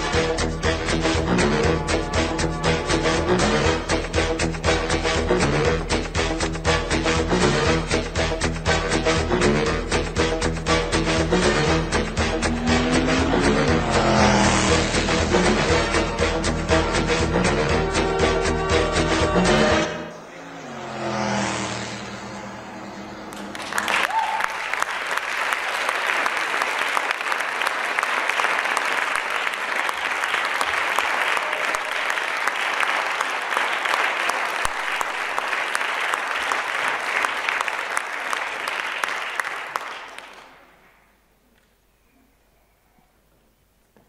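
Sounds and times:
dance music: 0.0s - 23.9s
audience applauding: 23.3s - 40.9s.

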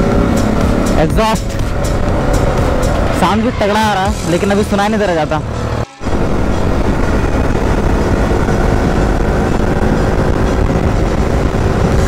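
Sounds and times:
motorbike engine running: 0.0s - 12.0s
road rumble: 0.0s - 12.0s
wind noise on microphone: 5.6s - 12.0s.

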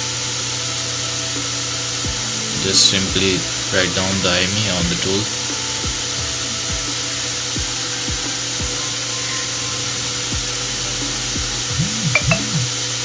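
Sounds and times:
constant hiss: 0.0s - 13.0s
music with bass kicks: 2.0s - 2.4s, 3.1s - 3.4s, 4.8s - 5.0s, 5.8s - 7.0s, 7.6s - 8.8s, 10.3s - 12.7s.

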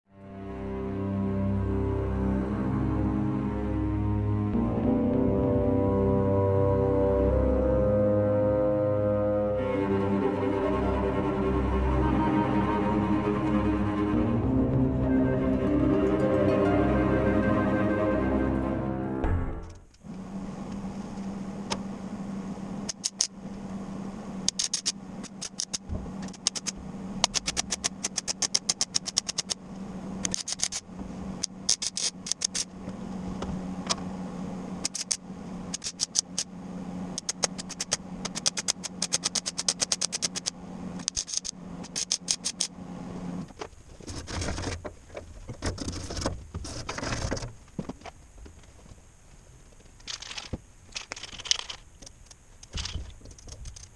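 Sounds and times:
welding crackling clicks: 24.5s - 29.6s, 30.2s - 30.8s, 34.8s - 36.5s, 37.2s - 42.7s, 49.9s - 53.9s.

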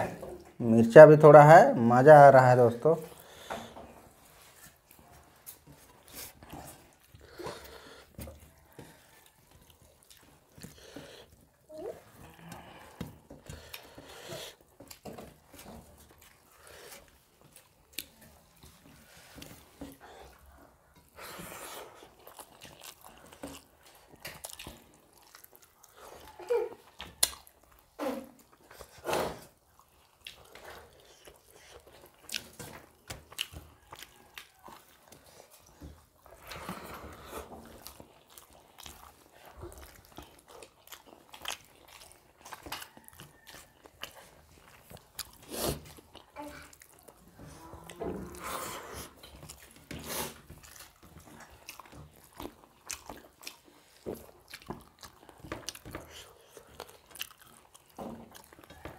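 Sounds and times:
wet chewing: 2.6s - 58.9s
lip smacks: 21.4s - 36.6s.

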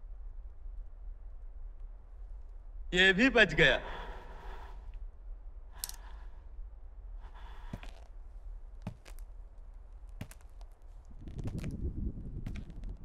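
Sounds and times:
low soundtrack hum: 0.0s - 13.0s
soft sharp footfalls: 8.8s - 13.0s.

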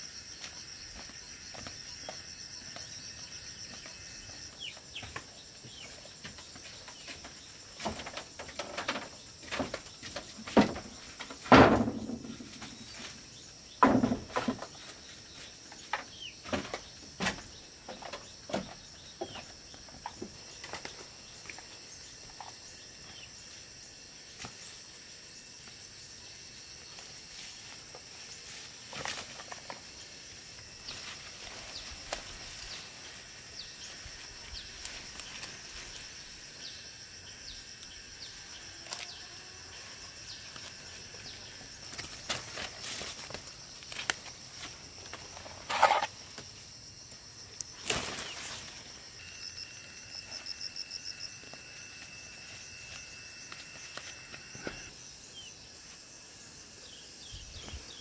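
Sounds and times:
insects buzzing: 0.0s - 58.0s
wooden bench thumping down: 10.5s - 12.6s, 13.8s - 14.7s
plants rustling and snapping: 28.0s - 30.0s, 30.8s - 33.2s, 34.6s - 36.2s, 41.8s - 46.5s, 47.6s - 48.9s.

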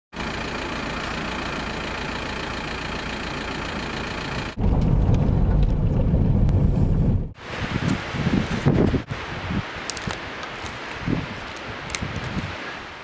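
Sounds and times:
wind buffeting microphone: 4.6s - 12.9s
wind hiss: 6.7s - 13.0s.

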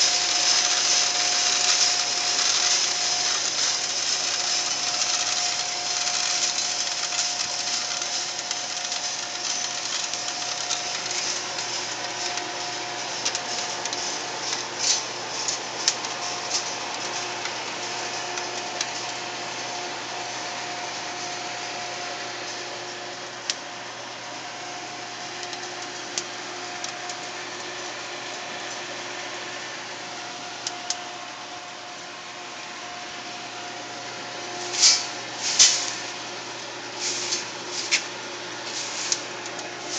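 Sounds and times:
coffee beans swishing and rattling: 0.0s - 21.5s, 34.4s - 39.9s
machine drone and hum: 0.0s - 39.9s.

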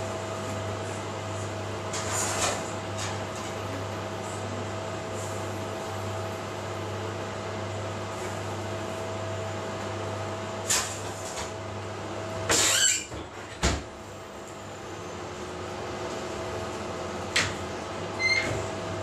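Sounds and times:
low electrical hum with tone: 0.0s - 19.0s.

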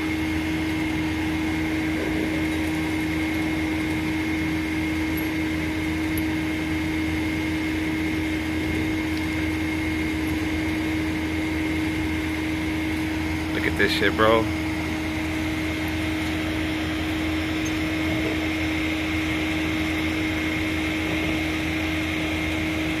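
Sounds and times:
truck engine idling: 0.0s - 23.0s.

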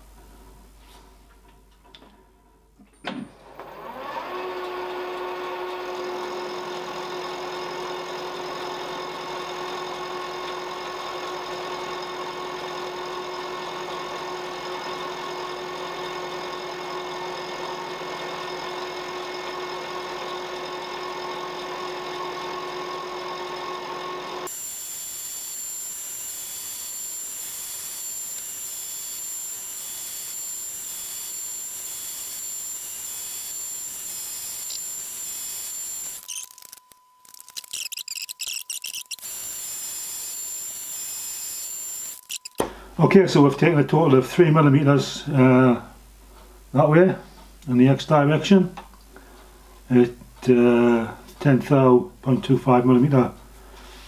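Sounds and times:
milling machine cutting metal: 3.6s - 42.6s.

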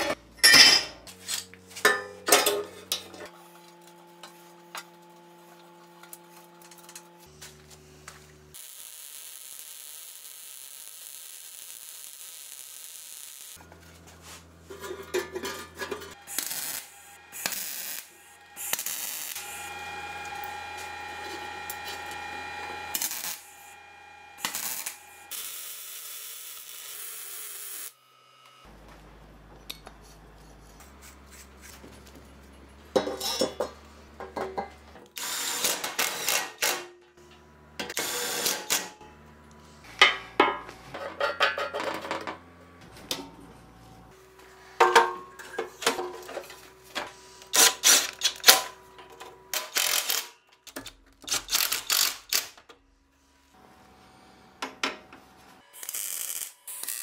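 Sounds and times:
welder sizzling on steel: 8.5s - 13.6s, 16.1s - 28.0s, 35.1s - 36.7s, 37.9s - 39.0s, 55.6s - 57.0s
drill-driver driving screws: 51.3s - 52.5s.

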